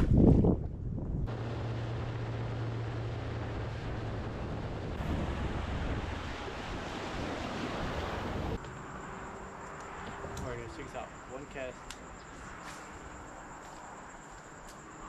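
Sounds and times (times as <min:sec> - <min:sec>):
wind rushing over microphone: 0:00.0 - 0:08.6
low motor hum: 0:00.4 - 0:08.6
water noise: 0:01.2 - 0:09.2.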